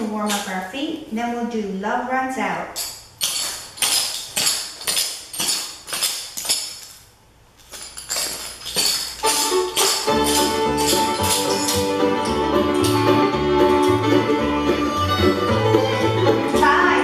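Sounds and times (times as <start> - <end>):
tap shoes clicking on concrete: 2.8 - 7.0, 7.6 - 17.0
bluegrass music: 9.2 - 17.0.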